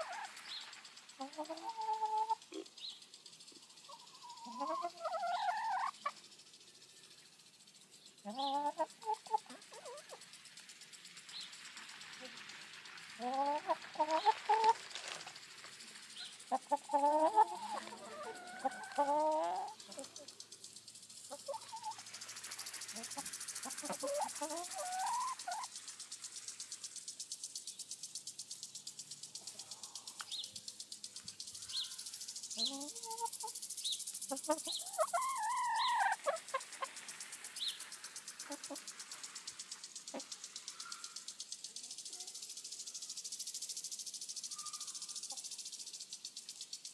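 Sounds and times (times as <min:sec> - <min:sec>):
hens clucking: 0:00.0 - 0:00.4, 0:01.2 - 0:02.8, 0:03.8 - 0:06.2, 0:08.2 - 0:10.2, 0:12.2 - 0:15.4, 0:16.4 - 0:20.4, 0:21.3 - 0:25.8, 0:32.6 - 0:33.6, 0:34.3 - 0:37.0, 0:38.4 - 0:38.9.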